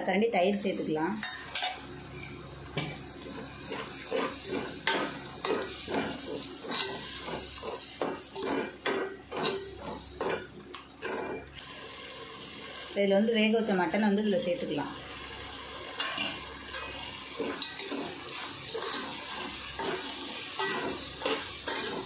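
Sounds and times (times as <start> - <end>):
low sizzle of frying: 0.0 - 22.0
ladle scraping metal pot: 17.4 - 22.0.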